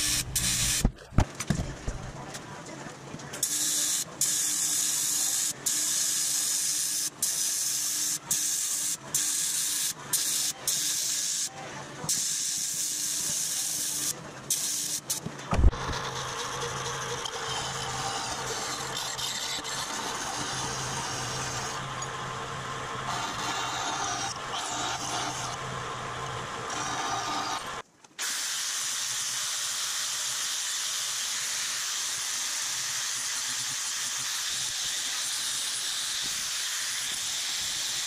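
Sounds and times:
welding arc hissing buzz: 0:00.0 - 0:00.9
machine humming: 0:15.5 - 0:27.8.

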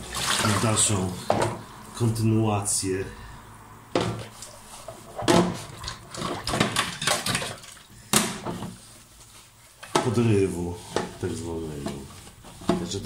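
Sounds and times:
dishes clinking in metal sink: 0:05.2 - 0:08.6.

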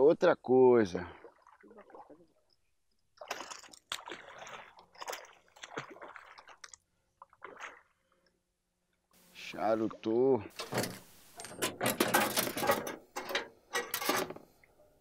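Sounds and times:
faint water splashing: 0:00.8 - 0:08.5.

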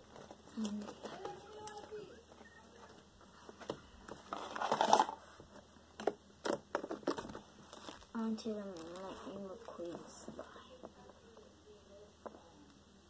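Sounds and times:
handling noise: 0:00.0 - 0:11.3
hands kneading slime: 0:07.0 - 0:11.0.

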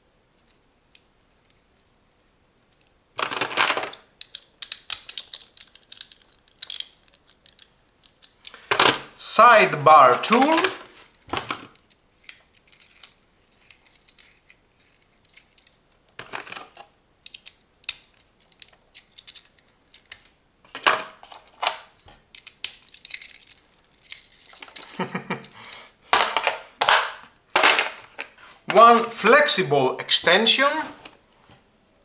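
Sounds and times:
steel sockets clinking: 0:10.4 - 0:15.8, 0:17.2 - 0:20.3, 0:21.0 - 0:25.5.

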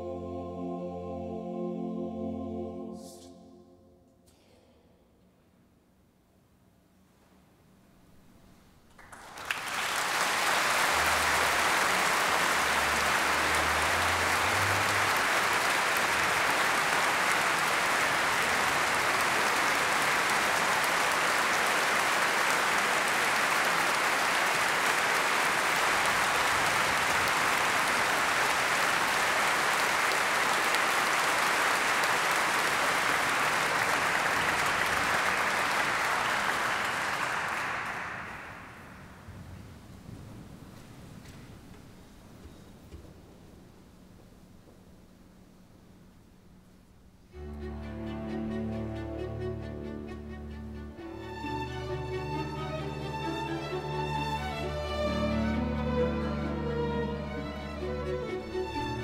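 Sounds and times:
audience applauding: 0:08.9 - 0:39.4, 0:47.4 - 0:59.0.

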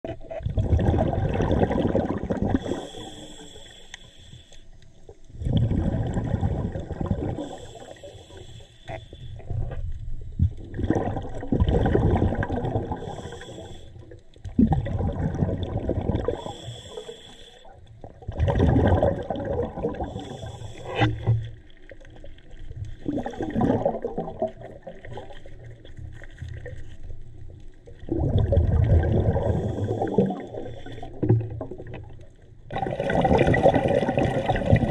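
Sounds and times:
gurgling exhaust bubbles: 0:00.4 - 0:02.9, 0:05.4 - 0:07.7, 0:10.4 - 0:13.3, 0:14.5 - 0:16.6, 0:18.0 - 0:20.5, 0:23.0 - 0:25.9, 0:28.0 - 0:32.0, 0:32.7 - 0:34.9
regulator inhale hiss: 0:02.6 - 0:05.1, 0:07.4 - 0:09.6, 0:12.9 - 0:14.2, 0:16.3 - 0:17.8, 0:20.0 - 0:21.4, 0:29.4 - 0:31.2.

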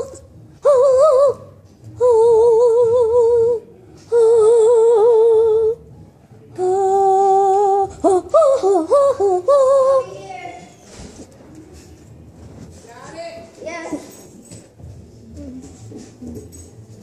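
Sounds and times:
girl singing without words: 0:00.0 - 0:05.9, 0:06.5 - 0:10.3.

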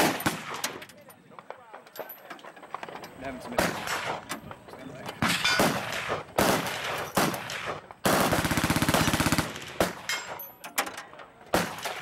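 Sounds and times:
machine gun firing: 0:00.0 - 0:00.8, 0:05.2 - 0:10.1.

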